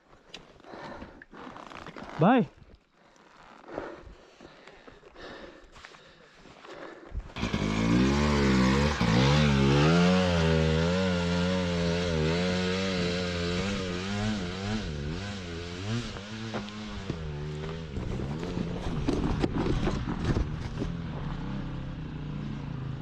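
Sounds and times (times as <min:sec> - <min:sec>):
motorcycle engine revving: 0:07.3 - 0:23.0.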